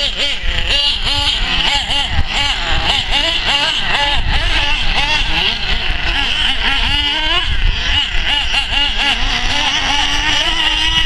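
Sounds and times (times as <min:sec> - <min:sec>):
remote control car motors revving: 0:00.0 - 0:11.0.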